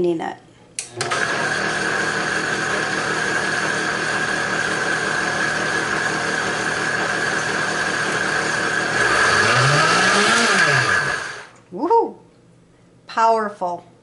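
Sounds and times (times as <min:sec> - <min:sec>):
blender motor whine: 0:00.9 - 0:11.6.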